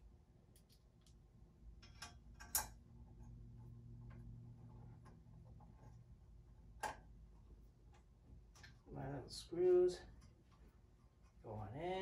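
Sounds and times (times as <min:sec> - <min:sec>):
low steady hum: 0:00.0 - 0:12.0
faint clicks of metal parts: 0:00.4 - 0:09.0.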